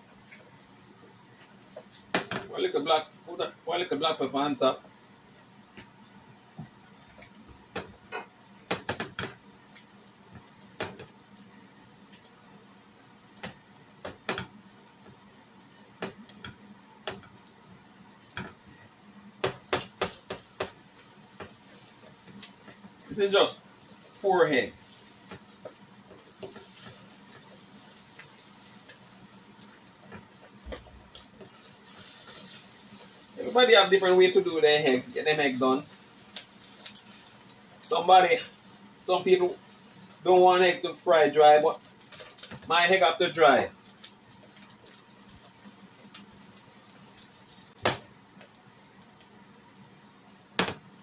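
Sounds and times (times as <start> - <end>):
utensils clicking on frying pan: 6.6 - 11.5, 12.1 - 12.4, 13.3 - 17.6, 18.2 - 18.8, 19.4 - 34.0, 35.0 - 38.3, 41.8 - 42.8, 43.8 - 48.6
spatula scraping and tapping pan: 19.4 - 22.8, 25.0 - 27.6.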